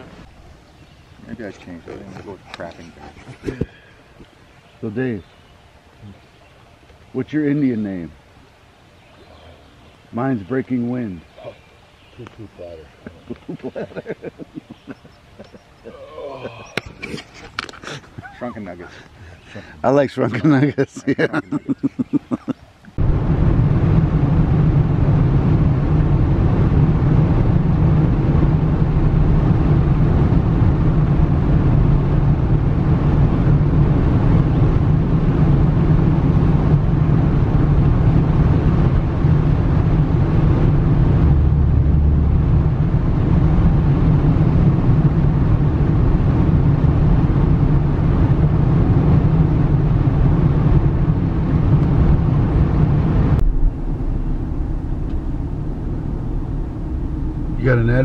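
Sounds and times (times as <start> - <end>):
car driving heard from inside: 35.3 - 58.0.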